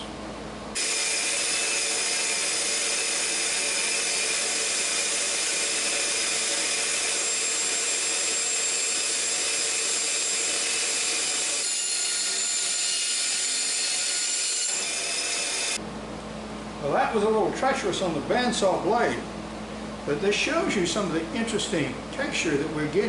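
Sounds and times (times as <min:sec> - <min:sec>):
bandsaw cutting through log: 0:00.8 - 0:15.8.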